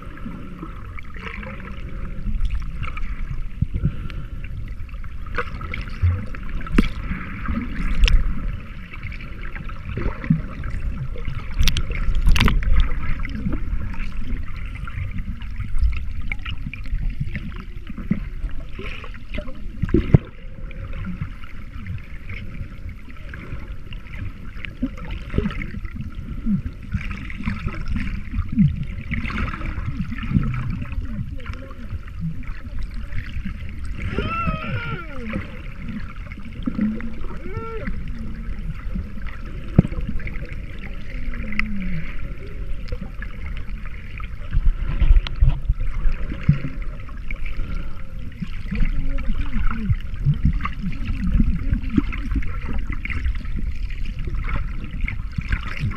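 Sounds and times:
underwater rushing and sloshing: 0:00.0 - 0:55.9.

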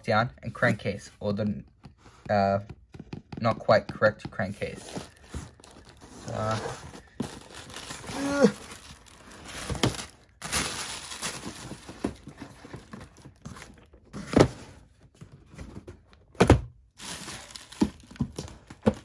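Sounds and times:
cardboard boxes knocking and thudding: 0:01.4 - 0:19.0
cardboard sliding and scraping: 0:04.6 - 0:08.1.

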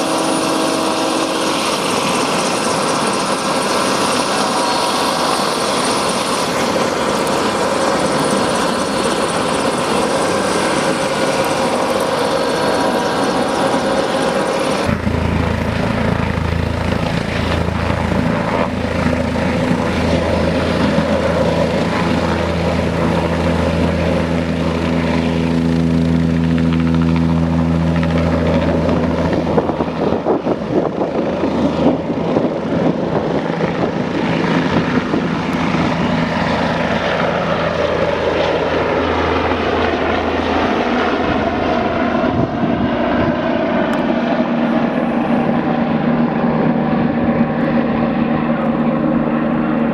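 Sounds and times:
helicopter turbine and rotor running: 0:00.0 - 0:49.9.

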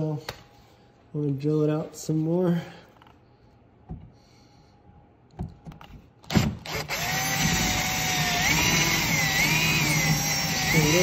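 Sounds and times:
power drill whining: 0:06.3 - 0:11.0.

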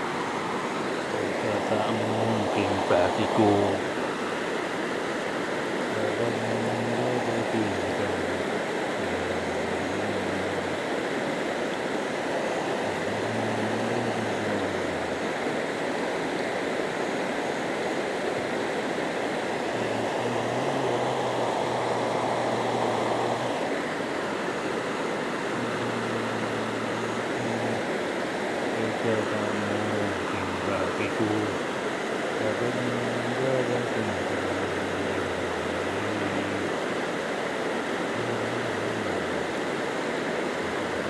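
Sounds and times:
river rushing over rocks: 0:00.0 - 0:41.0
faint low hum: 0:00.8 - 0:04.1, 0:05.9 - 0:10.9, 0:12.3 - 0:15.5, 0:19.6 - 0:23.9, 0:25.4 - 0:28.0, 0:28.7 - 0:31.8, 0:32.4 - 0:36.8, 0:38.1 - 0:39.5.

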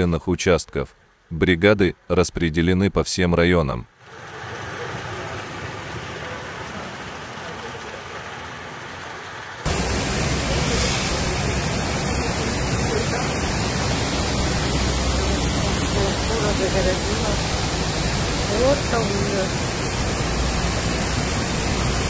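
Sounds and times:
heavy rain: 0:04.0 - 0:22.0
rushing runoff water: 0:04.0 - 0:22.0.

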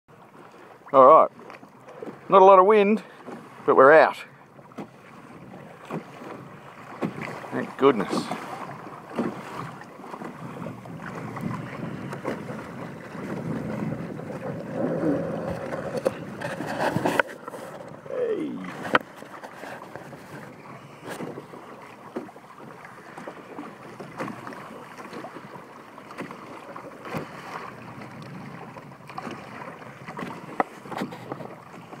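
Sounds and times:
water rushing along hulls: 0:00.1 - 0:32.0
wind buffeting microphone: 0:05.3 - 0:19.1.

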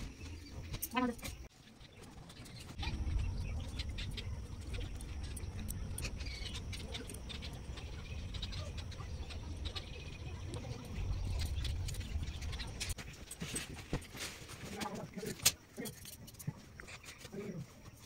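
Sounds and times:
faint high chirps: 0:02.4 - 0:13.0.

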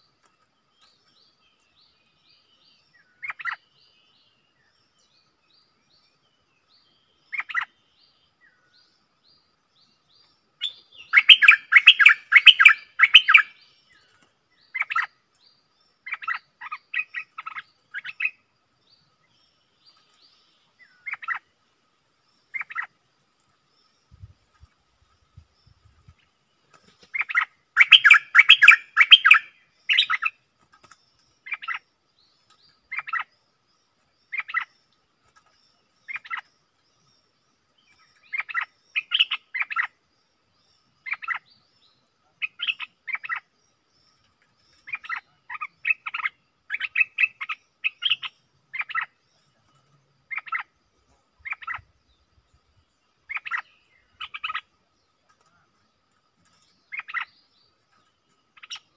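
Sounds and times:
bulbul singing: 0:09.9 - 0:18.4, 0:26.8 - 0:33.4, 0:34.2 - 0:58.9.

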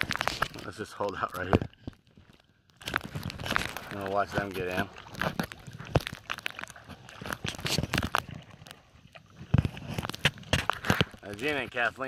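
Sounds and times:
kayaks and paddles knocking: 0:02.8 - 0:12.0.

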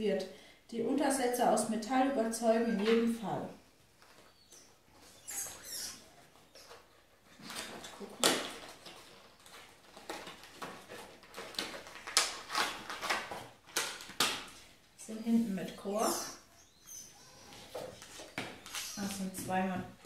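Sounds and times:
packaging rustling: 0:05.6 - 0:14.8.

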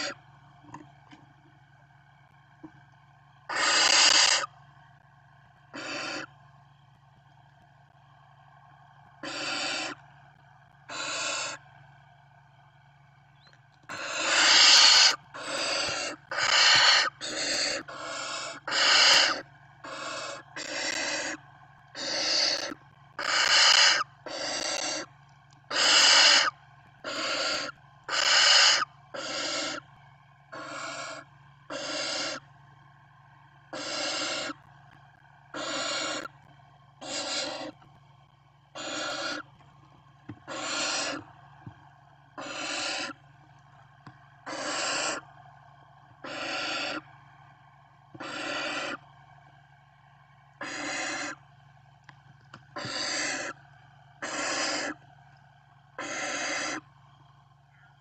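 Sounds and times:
owl chicks hissing calls: 0:00.0 - 0:00.2, 0:03.5 - 0:04.5, 0:05.7 - 0:06.4, 0:09.2 - 0:10.0, 0:10.9 - 0:11.6, 0:13.9 - 0:21.4, 0:22.0 - 0:25.1, 0:25.7 - 0:29.9, 0:30.5 - 0:32.5, 0:33.7 - 0:34.7, 0:35.4 - 0:36.4, 0:37.0 - 0:37.9, 0:38.7 - 0:39.5, 0:40.4 - 0:41.3, 0:42.3 - 0:43.2, 0:44.4 - 0:45.3, 0:46.2 - 0:47.1, 0:48.2 - 0:49.1, 0:50.6 - 0:51.5, 0:52.7 - 0:53.6, 0:54.2 - 0:55.0, 0:55.9 - 0:56.9
steady low hum: 0:00.0 - 0:58.0.

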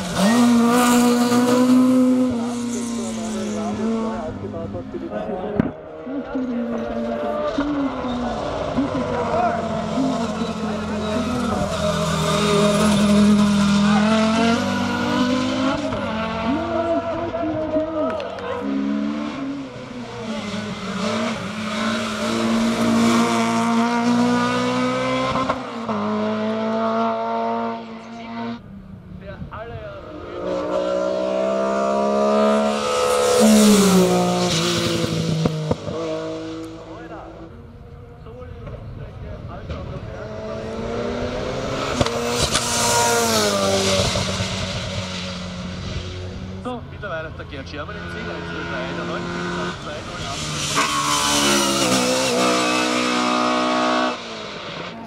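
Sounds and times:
car engine revving hard: 0:00.0 - 0:28.6, 0:30.0 - 0:37.5, 0:39.7 - 0:46.8, 0:47.6 - 0:55.0.

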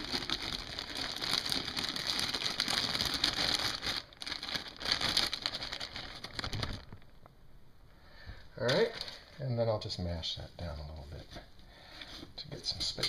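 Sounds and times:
plastic bag crinkling: 0:00.0 - 0:07.4, 0:08.6 - 0:09.4.

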